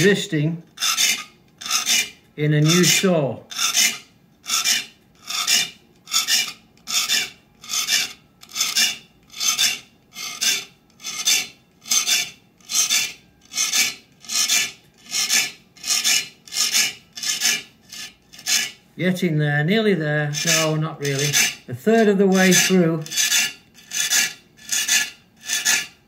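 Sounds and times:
file rasping on saw teeth: 0:00.7 - 0:18.8, 0:20.3 - 0:26.0.

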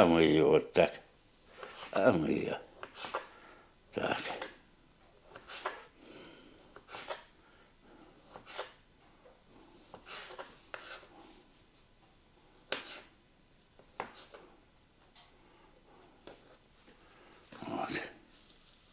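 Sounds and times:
knife scraping board: 0:02.8 - 0:03.3, 0:05.3 - 0:05.9, 0:06.8 - 0:07.3, 0:08.2 - 0:08.8, 0:09.9 - 0:11.1, 0:12.7 - 0:13.1
knife slicing potato on board: 0:12.7 - 0:13.1.

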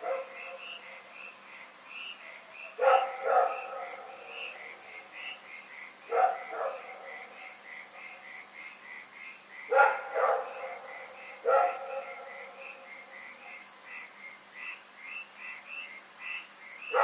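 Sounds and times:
dog barking: 0:00.0 - 0:00.6, 0:02.8 - 0:04.3, 0:06.1 - 0:07.3, 0:09.7 - 0:12.6.

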